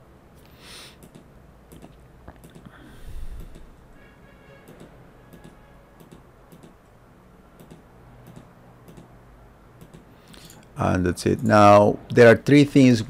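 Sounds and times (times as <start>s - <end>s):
computer mouse clicking: 1.0s - 2.7s, 3.4s - 3.8s, 4.7s - 6.9s, 7.6s - 9.1s, 9.8s - 10.1s.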